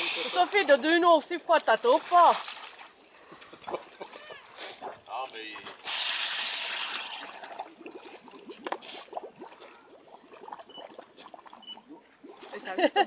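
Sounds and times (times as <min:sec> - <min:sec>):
air bubbles gurgling: 0:05.6 - 0:13.0.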